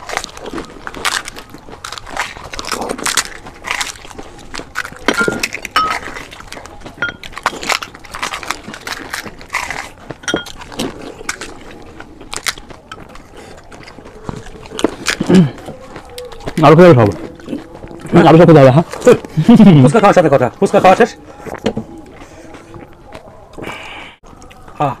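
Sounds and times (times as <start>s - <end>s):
crisp shells cracking: 0.0s - 18.1s
chewing crunches: 0.0s - 25.0s.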